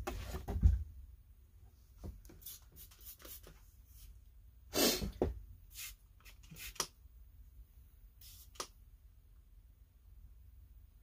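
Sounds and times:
spray bottle squirting: 5.7 - 6.9, 8.2 - 8.7.

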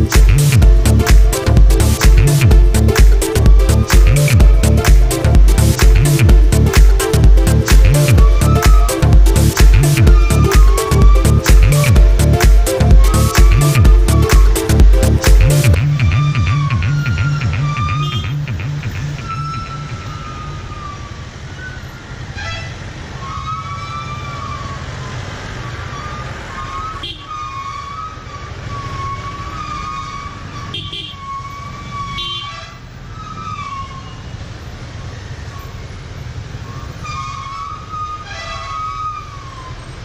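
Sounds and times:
motorcycle engine rumbling: 0.0 - 40.0
wavering high-pitched tone: 7.8 - 21.0.

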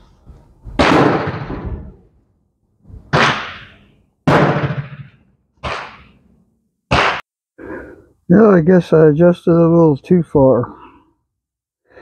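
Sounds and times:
gunshots with echo: 0.8 - 1.9, 3.1 - 6.2, 6.9 - 7.2.

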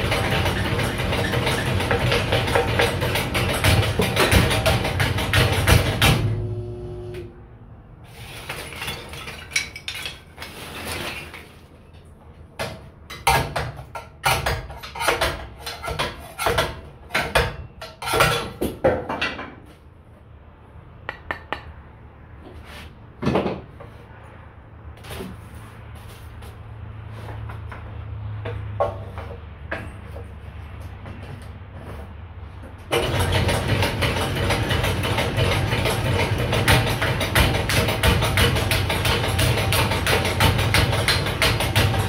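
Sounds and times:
wooden sticks knocking on steel: 21.1 - 21.7.

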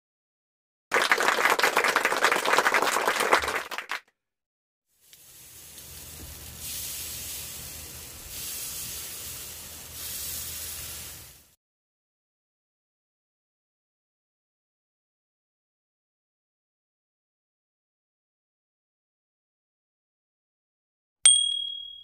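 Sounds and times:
batter sizzling in hot pan: 4.9 - 11.6.

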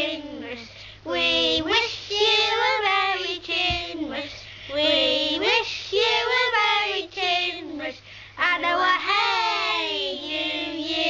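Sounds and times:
children singing: 8.6 - 11.0.

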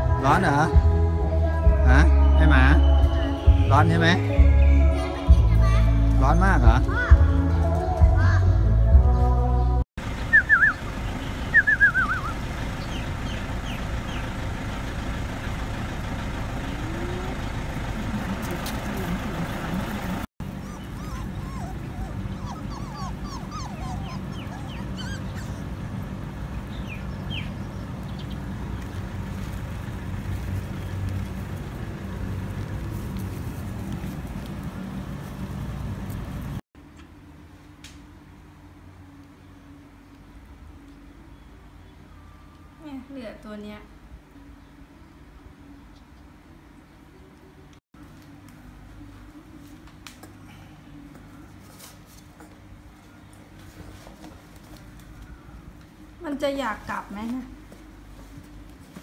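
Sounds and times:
puppies yipping and whimpering: 20.2 - 26.2.

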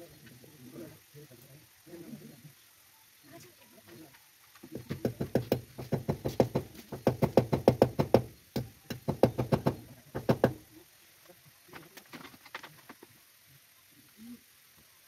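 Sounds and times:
hammer tapping nails into wood: 4.8 - 10.6.

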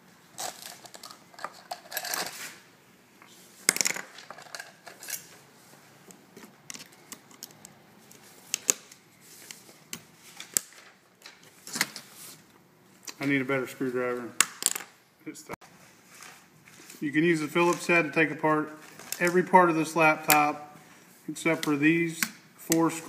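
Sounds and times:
tools clattering: 0.4 - 2.5, 3.7 - 5.4.

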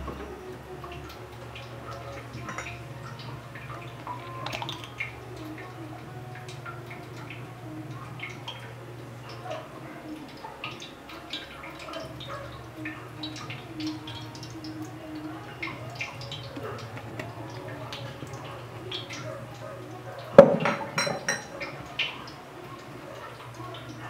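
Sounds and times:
light ticks and drips: 0.0 - 24.0.

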